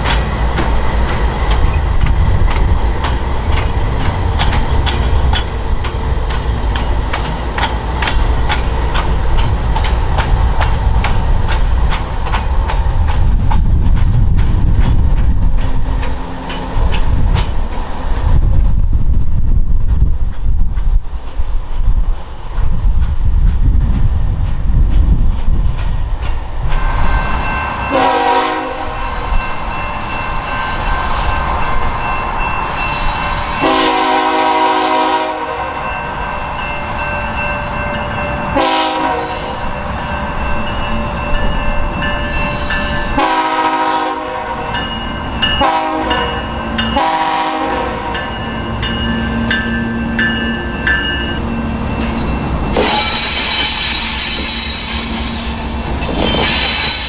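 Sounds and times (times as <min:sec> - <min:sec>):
diesel locomotive engines: 0:00.0 - 0:57.0
freight train rumbling past: 0:00.0 - 0:57.0
crossing bell ringing: 0:26.8 - 0:34.1, 0:35.4 - 0:43.8, 0:44.6 - 0:55.0
locomotive air horn blasts: 0:27.9 - 0:29.0, 0:33.6 - 0:35.8, 0:38.5 - 0:39.7, 0:43.2 - 0:44.7, 0:45.6 - 0:48.1.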